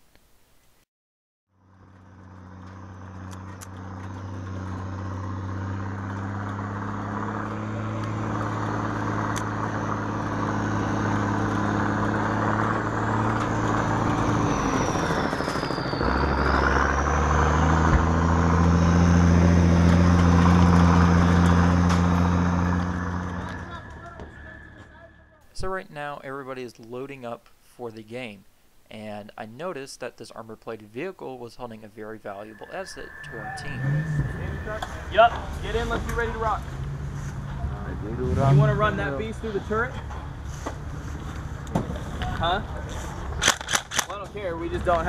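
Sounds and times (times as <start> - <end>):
truck engine running: 1.5 - 25.5, 32.4 - 43.6.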